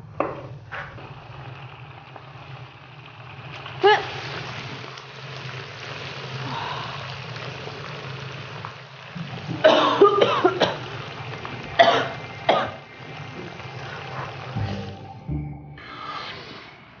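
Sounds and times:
woman coughing: 9.6s - 10.8s, 11.8s - 12.8s.

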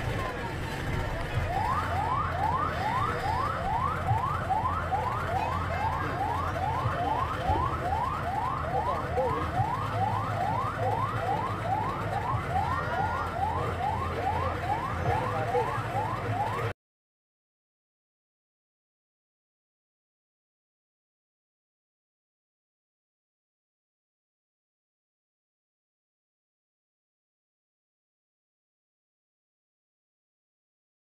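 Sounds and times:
ambulance siren wailing: 0.1s - 16.8s.

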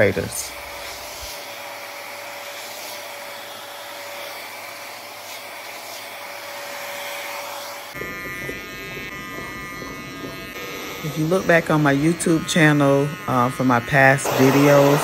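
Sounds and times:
electric hair clippers buzzing: 0.0s - 15.0s
hair dryer blowing with whine: 0.0s - 15.0s.

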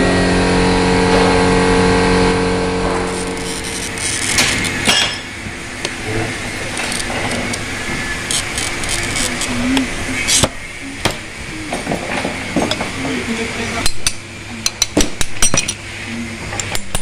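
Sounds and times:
engine hum: 0.0s - 13.7s
glass cutter scoring glass: 2.8s - 11.2s.

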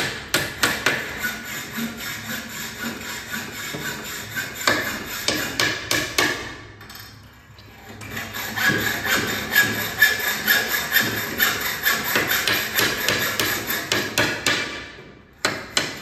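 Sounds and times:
hammer knocking on wood: 12.1s - 16.0s.

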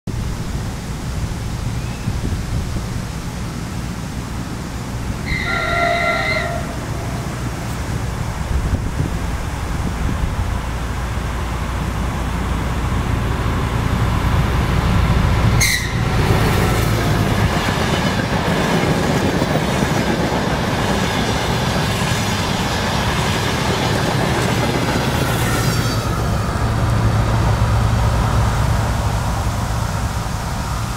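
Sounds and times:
train wheels on rails: 2.6s - 30.9s
diesel engine rumble: 26.0s - 30.9s.

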